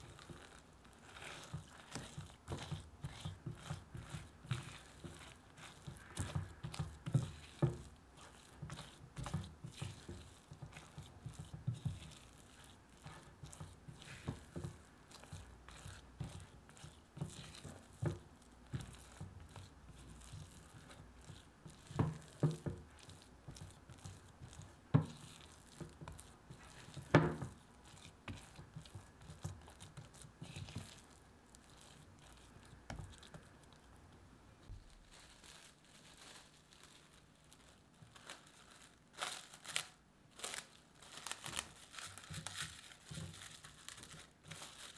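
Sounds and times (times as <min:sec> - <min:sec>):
spatula scraping sticky dough: 0:00.0 - 0:33.9, 0:41.4 - 0:44.9.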